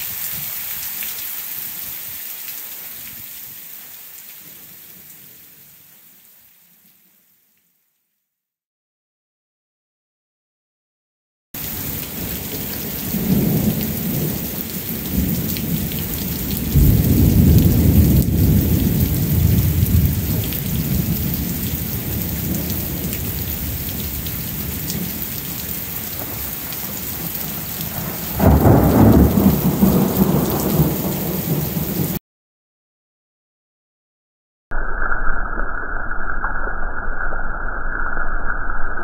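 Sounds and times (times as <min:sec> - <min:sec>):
rain hiss: 0:00.0 - 0:07.8, 0:11.6 - 0:32.2
rolling thunder: 0:11.6 - 0:32.2
sharp thunderclap: 0:12.8 - 0:25.2, 0:25.9 - 0:32.2.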